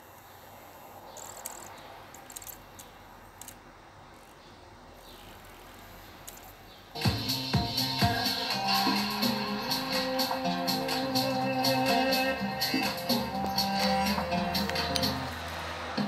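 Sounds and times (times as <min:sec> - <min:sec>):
loud music from car stereo: 0:07.0 - 0:16.0.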